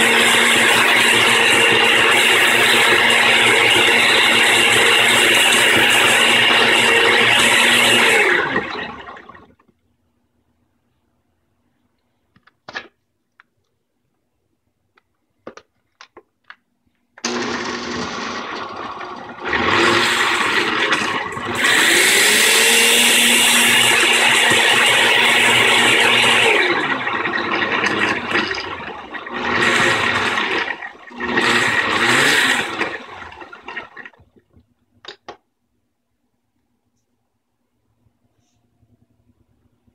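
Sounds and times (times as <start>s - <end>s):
blender motor whirring: 0.0s - 9.5s, 17.2s - 34.1s.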